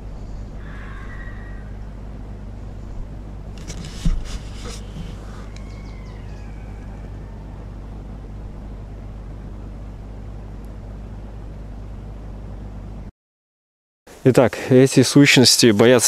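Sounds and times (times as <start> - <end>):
low hum: 0.0 - 13.1
faint falling whistling cries: 0.1 - 2.0, 5.2 - 7.7
rustling and crackling: 2.7 - 5.6.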